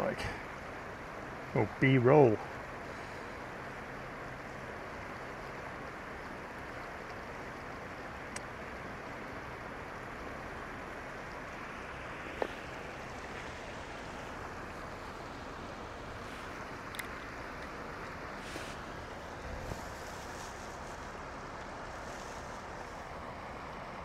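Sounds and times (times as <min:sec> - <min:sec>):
shallow river rushing over rocks: 0:00.0 - 0:24.0.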